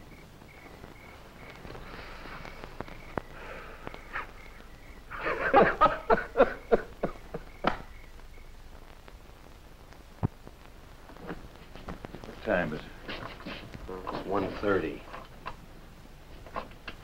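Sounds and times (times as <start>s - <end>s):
men laughing heartily: 5.1s - 7.6s.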